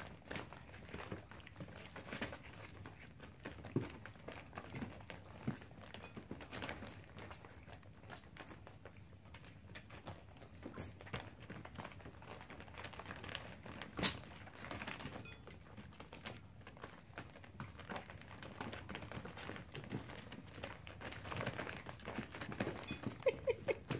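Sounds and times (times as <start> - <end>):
puppy crunching kibble: 0.0 - 23.9
kibble rattling in metal bowl: 12.9 - 23.9.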